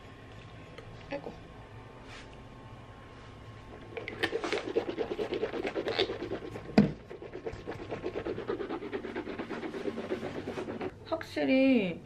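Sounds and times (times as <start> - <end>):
mouthwash bubbling and sloshing: 3.7 - 11.0.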